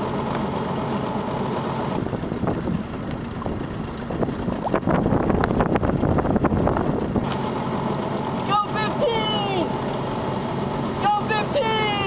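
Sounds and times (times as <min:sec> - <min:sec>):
wind buffeting microphone: 0:02.0 - 0:07.3.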